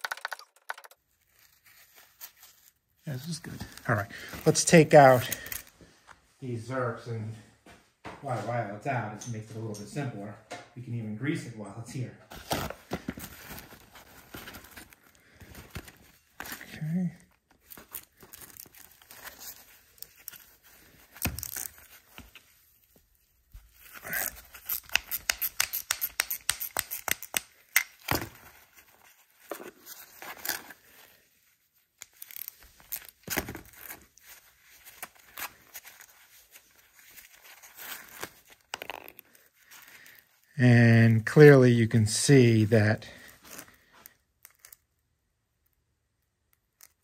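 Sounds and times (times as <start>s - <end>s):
socket ratchet clicking: 24.8s - 27.9s.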